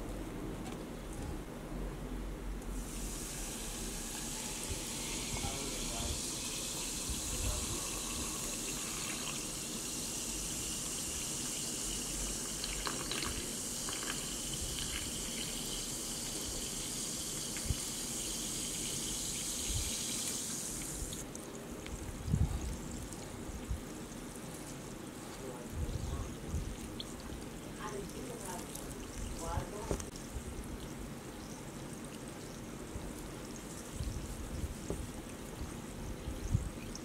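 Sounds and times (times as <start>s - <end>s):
sparkling water pouring and fizzing: 2.8s - 37.0s.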